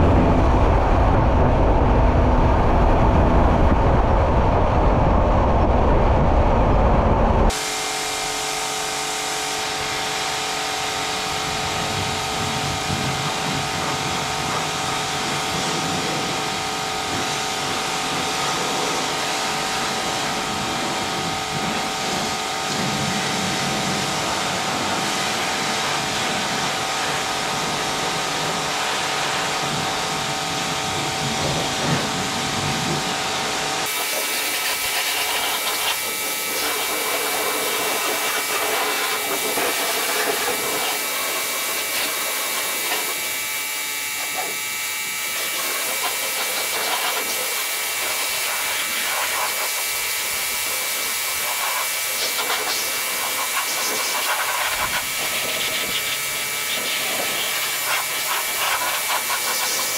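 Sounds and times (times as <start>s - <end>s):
small electric motor whirring: 33.8s - 59.9s.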